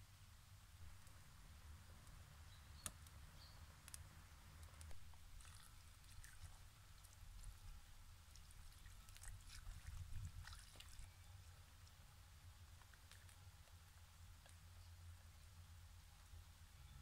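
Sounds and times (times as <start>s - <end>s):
water trickling and splashing: 4.9s - 13.8s.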